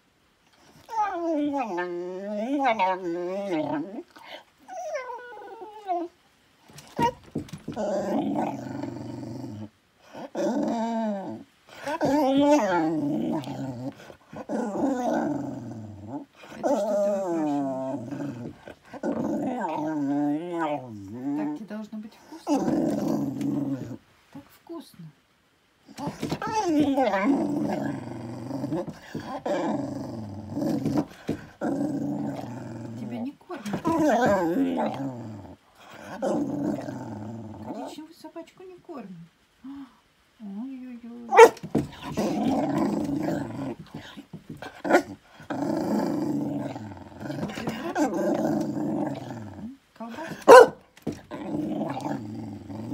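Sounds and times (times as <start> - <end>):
dog moaning: 0.6 - 6.1, 6.8 - 24.0, 25.9 - 38.0, 41.3 - 52.9
dog whining: 0.7 - 6.2, 25.9 - 31.1.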